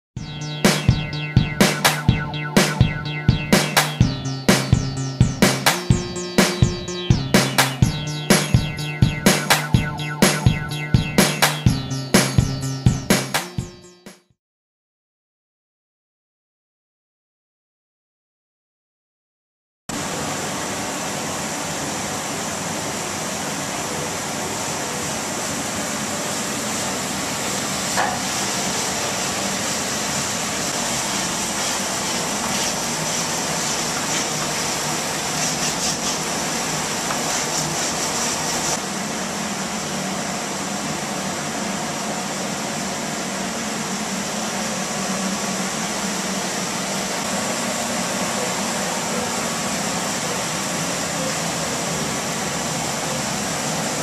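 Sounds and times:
loud steady hissing: 20.0 - 54.0.

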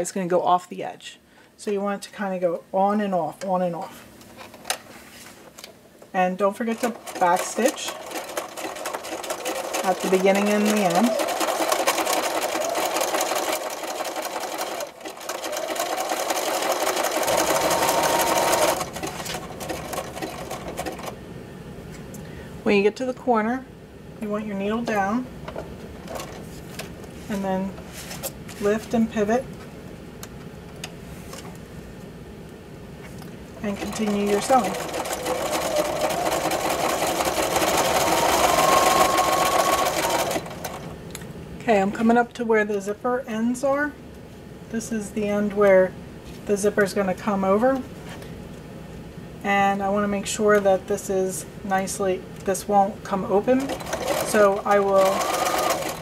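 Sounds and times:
sewing machine stitching: 6.6 - 21.1, 33.6 - 40.9, 53.5 - 56.0.

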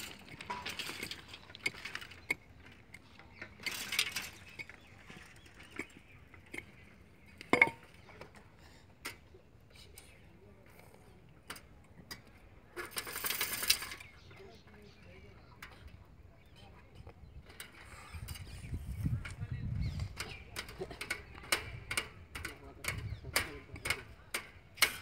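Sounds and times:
scraping through earth and gravel: 0.0 - 7.3.

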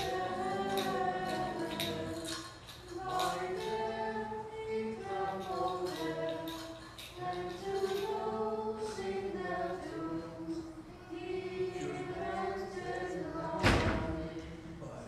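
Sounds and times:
a cappella chant: 0.0 - 15.0.

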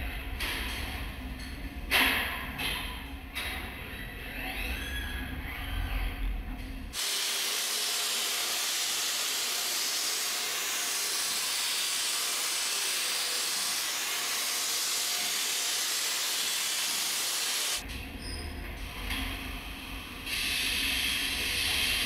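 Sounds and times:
laser welding hiss: 7.0 - 17.8, 20.3 - 22.0.

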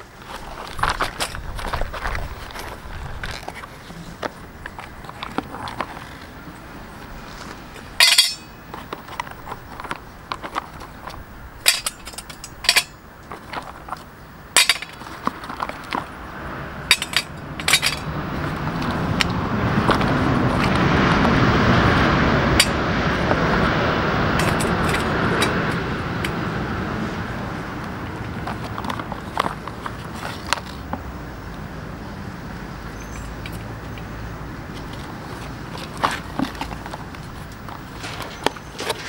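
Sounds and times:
wooden sticks clinking in metal stove: 8.0 - 9.7, 11.6 - 13.7, 14.5 - 16.0, 16.9 - 18.2, 22.6 - 22.8
high-speed train passing: 16.2 - 28.4.

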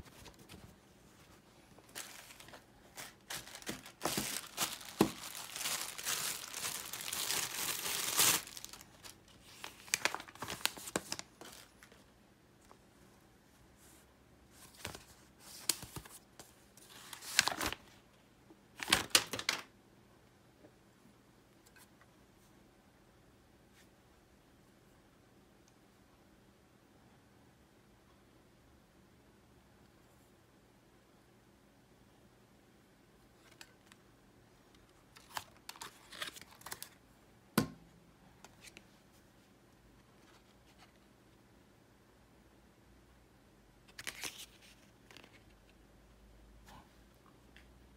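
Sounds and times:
paper leaflet rustling and crinkling: 0.0 - 12.1, 14.6 - 17.9, 35.1 - 37.0, 43.9 - 45.5.

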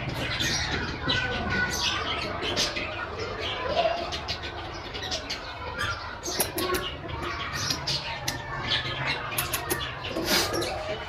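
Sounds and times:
parakeet chicks begging squeaks: 0.0 - 11.0.

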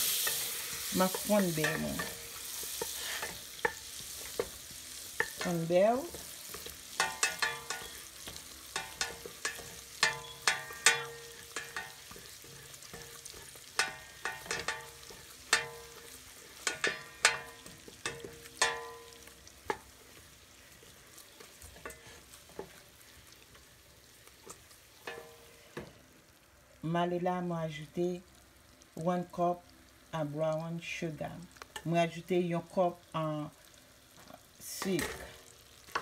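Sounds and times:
butter sizzling in a pot: 0.0 - 36.0
spoon knocking against metal pot: 7.0 - 8.0, 8.8 - 12.2, 12.9 - 16.0.

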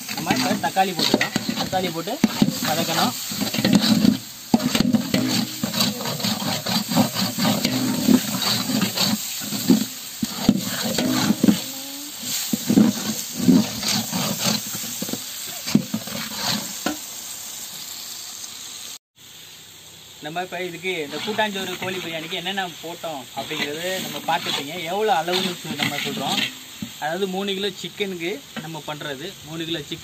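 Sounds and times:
metal ladle scraping pot: 0.0 - 17.0, 23.4 - 27.0
frying sizzle: 0.0 - 30.0.

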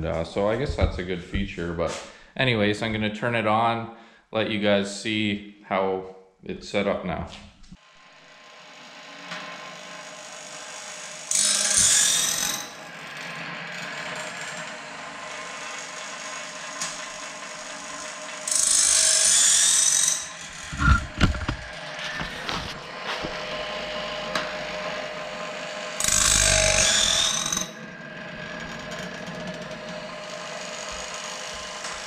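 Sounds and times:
low knocks: 0.5 - 1.6
grinding disc hissing: 19.3 - 24.8
motor hum: 20.4 - 27.2.

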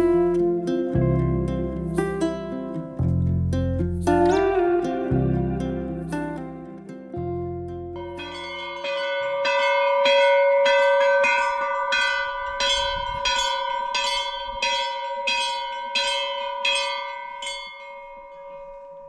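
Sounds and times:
bell ringing: 8.0 - 19.0.

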